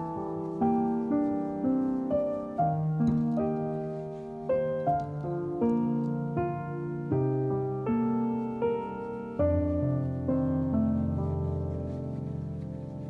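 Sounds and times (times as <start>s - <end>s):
gentle piano music: 0.0s - 13.0s.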